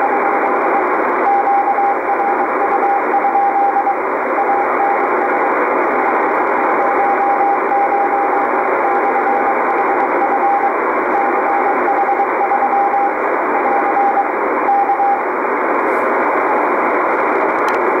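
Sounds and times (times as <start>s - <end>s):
morse code tone: 0.0s - 15.2s
radio band hiss: 0.0s - 18.0s.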